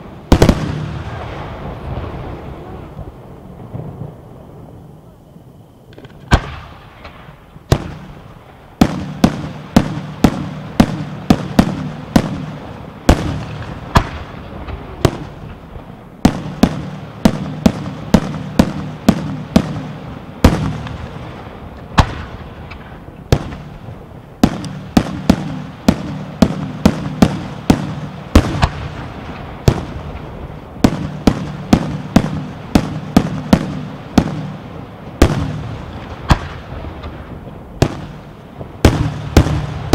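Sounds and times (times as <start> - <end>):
firework shells bursting: 24.4 - 34.6.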